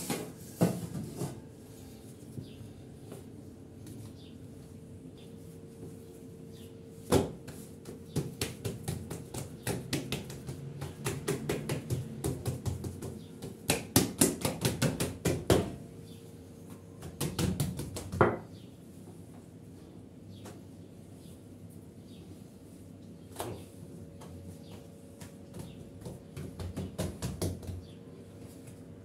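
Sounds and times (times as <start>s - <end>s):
hands slapping dough: 7.0s - 15.8s, 16.6s - 18.6s, 23.3s - 28.9s.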